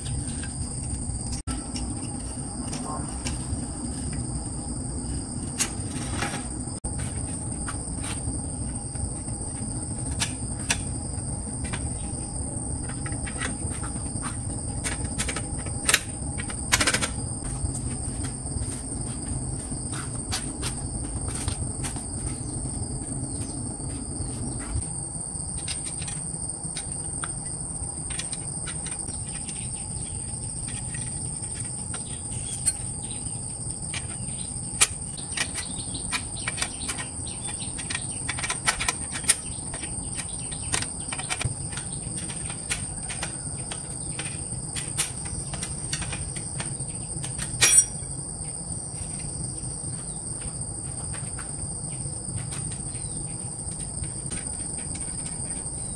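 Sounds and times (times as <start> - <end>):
insect chorus: 0.0 - 55.9
hand tools clicking on bicycle parts: 34.8 - 48.0.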